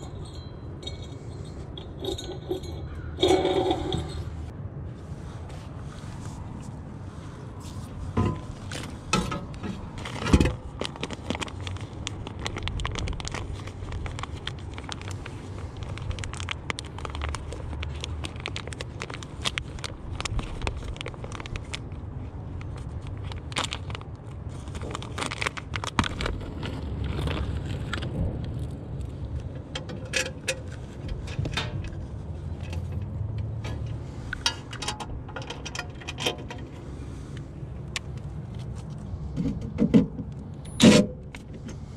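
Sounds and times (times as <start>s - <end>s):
metal parts clinking and scraping: 0.0s - 4.5s, 29.4s - 37.0s
steady low rumble: 0.0s - 41.9s.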